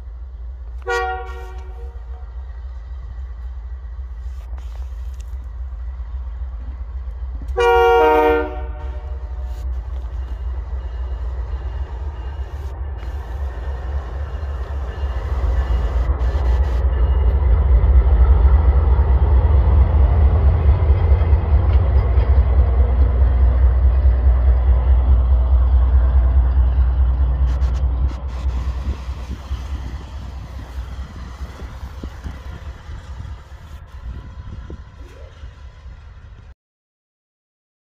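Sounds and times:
diesel locomotive engine rumble: 0.0 - 36.6
train horn blast: 0.8 - 2.3, 7.5 - 9.6.

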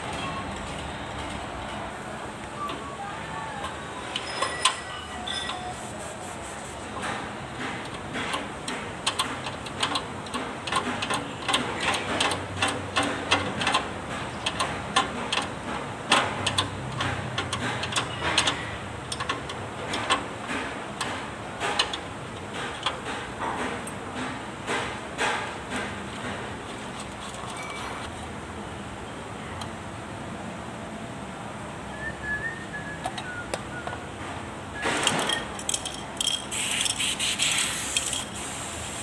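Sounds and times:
small clicks and taps of parts: 7.0 - 26.4.

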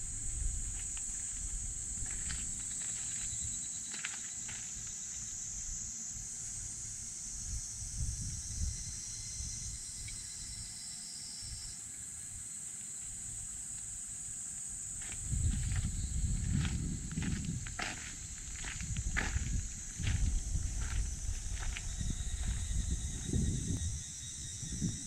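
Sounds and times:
insects droning: 0.0 - 25.0
low rumble: 18.4 - 24.0.

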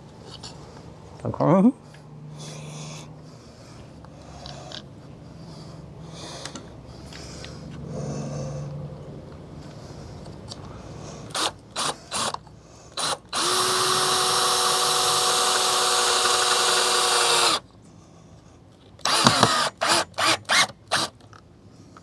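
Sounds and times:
cordless drill whining: 11.3 - 12.4, 13.0 - 17.6, 19.0 - 21.1.

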